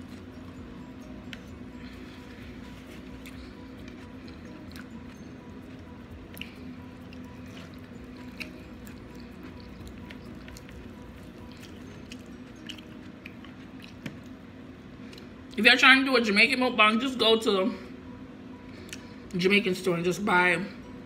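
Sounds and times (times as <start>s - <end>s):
chewing and mouth sounds: 2.4s - 14.4s.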